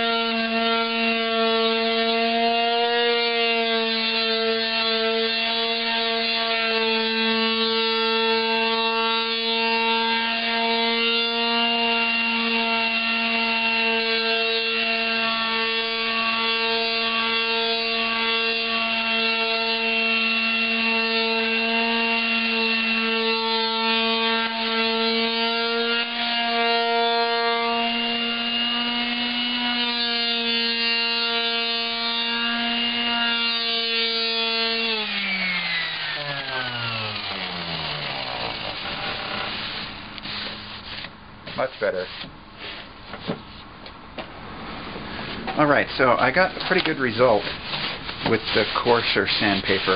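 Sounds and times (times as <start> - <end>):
palm sander motor hum: 0.0 - 43.7, 44.7 - 49.9
sandpaper scratching wood: 36.2 - 43.7, 46.3 - 49.9.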